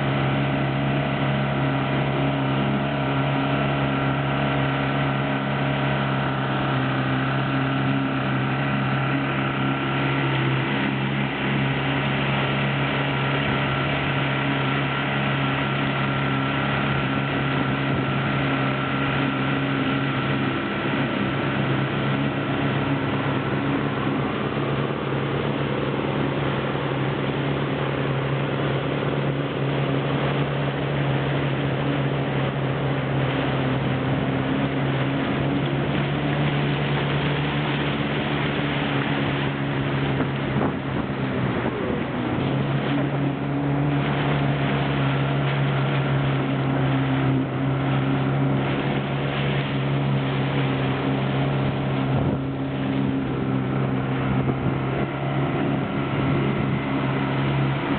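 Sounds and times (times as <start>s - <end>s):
outboard motor droning: 0.0s - 57.9s
water rushing: 0.0s - 57.9s
wind: 0.0s - 57.9s.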